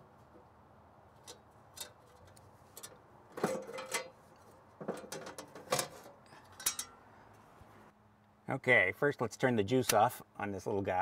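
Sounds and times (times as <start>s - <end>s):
sheet metal cover clanking and scraping: 2.8s - 4.2s, 4.8s - 6.8s.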